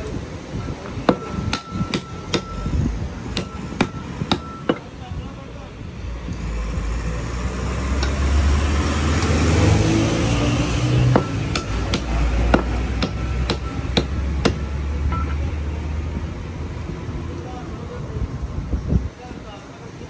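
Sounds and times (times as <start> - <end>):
cleaver chopping meat on wood: 11.0 - 14.7.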